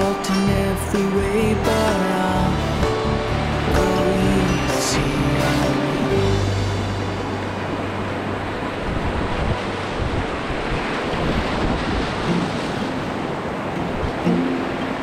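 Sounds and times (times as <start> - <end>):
rapids rushing and splashing: 0.0 - 15.0
wind buffeting microphone: 7.4 - 15.0.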